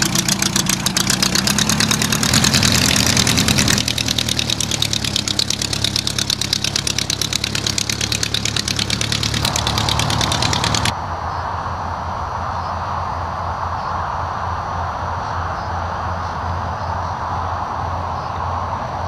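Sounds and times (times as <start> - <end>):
light aircraft piston engine running: 0.0 - 10.9.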